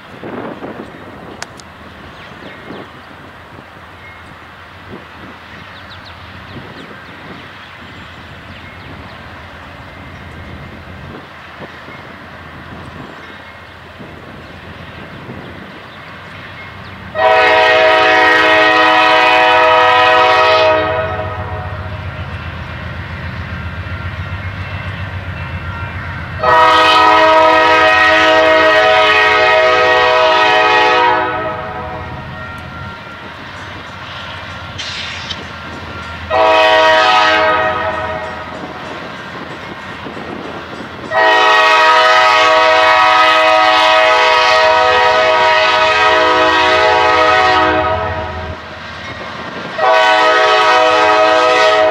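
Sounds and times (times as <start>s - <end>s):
locomotive air horn blasts: 17.1s - 21.9s, 26.4s - 32.4s, 36.3s - 38.5s, 41.1s - 48.6s, 49.8s - 51.9s.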